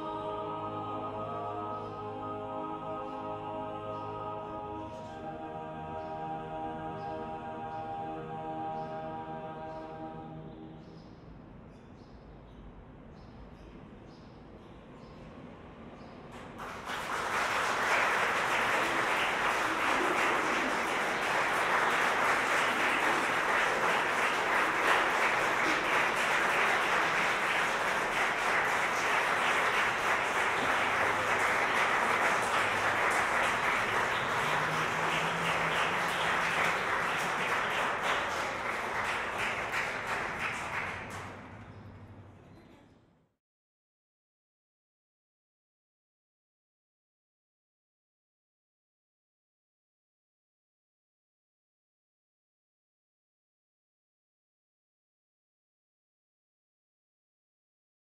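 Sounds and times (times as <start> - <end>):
small audience applauding: 16.3 - 41.7.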